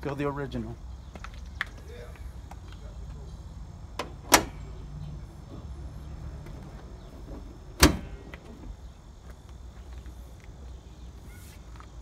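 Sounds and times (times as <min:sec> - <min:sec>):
car hood clunking shut: 0:04.0 - 0:04.7, 0:07.3 - 0:08.7.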